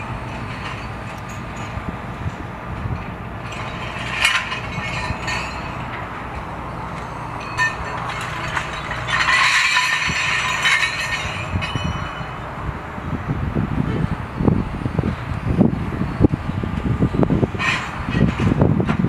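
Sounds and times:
scrap steel clanking: 0:00.0 - 0:12.7, 0:17.5 - 0:19.0
diesel engine hum: 0:00.0 - 0:19.0.

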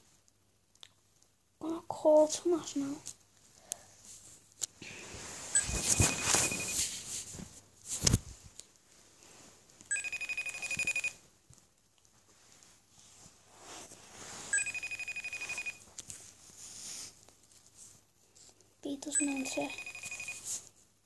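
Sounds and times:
phone handling rustle: 0:05.5 - 0:06.9
pulsing electronic phone ring: 0:05.6 - 0:06.8, 0:09.9 - 0:11.2, 0:14.5 - 0:15.8, 0:19.2 - 0:20.5.

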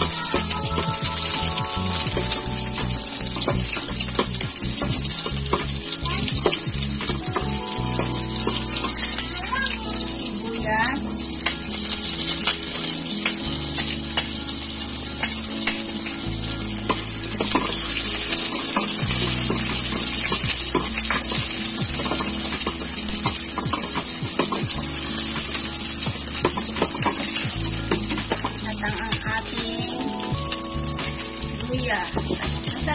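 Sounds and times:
garlic and onion sizzling: 0:00.0 - 0:32.9
ladle scraping pot: 0:16.8 - 0:24.6.

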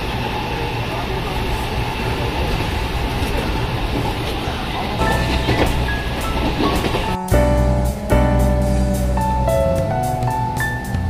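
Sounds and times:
train wheels rumbling on rail: 0:00.0 - 0:11.0
steady higher tones: 0:05.0 - 0:11.0.

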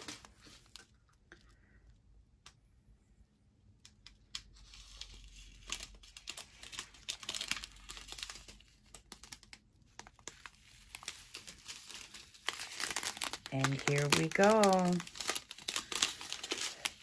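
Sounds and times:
plastic bags crinkling: 0:05.0 - 0:17.0.

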